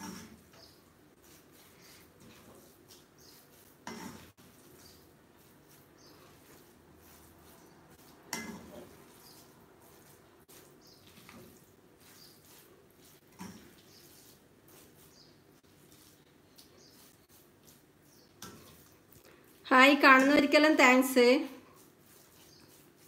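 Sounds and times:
spatula scraping metal pan: 0.0s - 16.2s.

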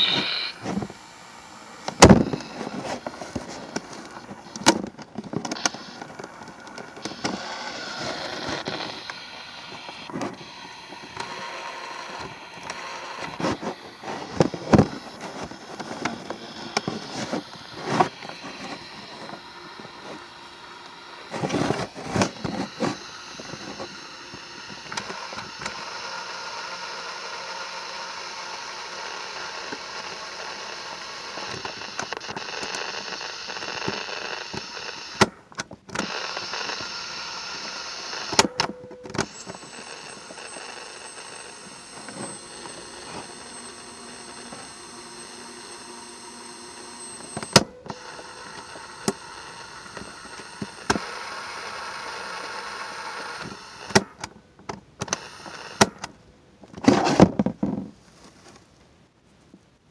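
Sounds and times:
cassette recorder whirring hiss: 0.0s - 59.9s
sharp clicks: 47.0s - 51.2s.

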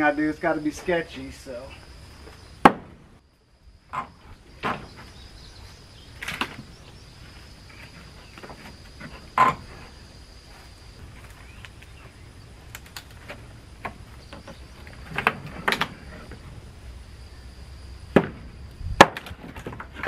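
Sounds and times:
high insect call: 0.0s - 20.0s.

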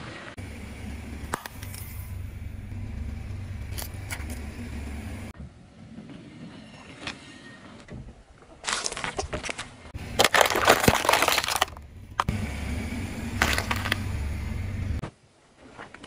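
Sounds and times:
rolling car rumble: 0.4s - 6.3s, 9.9s - 15.0s
tyre crunching cabbage: 8.6s - 12.3s
tyre crushing matchboxes: 10.1s - 12.3s, 13.4s - 14.0s.

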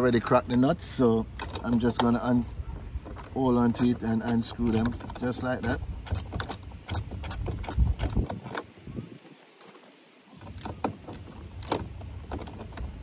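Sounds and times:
ratchet wrench clicking: 3.2s - 8.6s.

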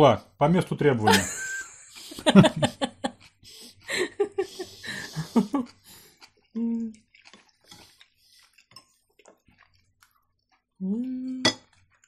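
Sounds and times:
people laughing: 1.1s - 3.2s, 3.9s - 5.7s
person humming with mouth full: 6.6s - 7.0s, 10.8s - 11.5s.

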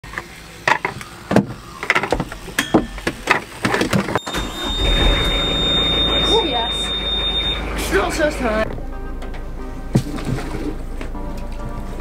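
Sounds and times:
high-pitched warning beep: 4.1s - 8.3s.

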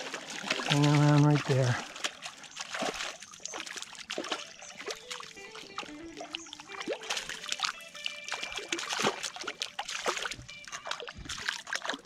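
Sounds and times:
water splashing and trickling: 0.0s - 12.0s
faint music: 3.5s - 12.0s.

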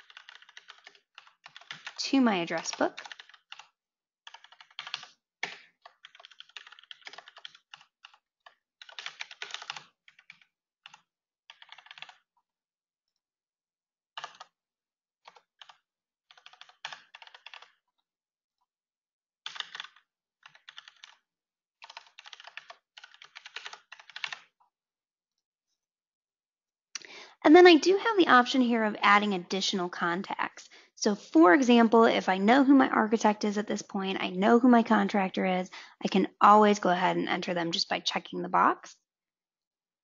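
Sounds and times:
computer keyboard typing: 0.0s - 12.2s, 14.2s - 14.5s, 15.2s - 17.8s, 19.4s - 21.2s, 21.8s - 24.5s.

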